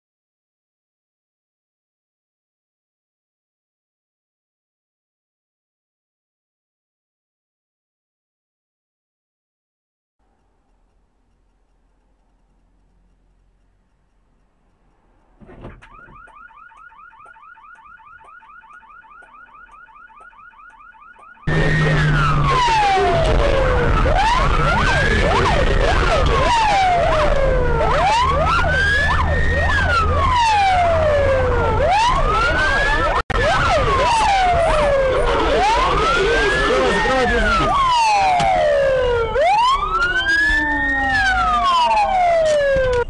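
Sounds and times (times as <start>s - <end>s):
engine hum: 10.2s - 43.0s
police siren wailing: 15.6s - 43.0s.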